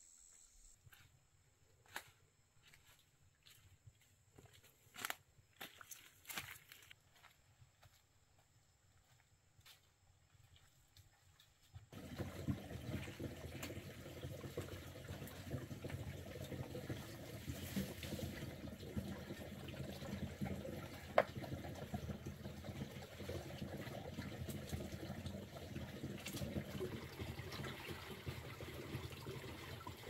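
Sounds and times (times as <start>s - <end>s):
water trickling: 11.9s - 30.0s.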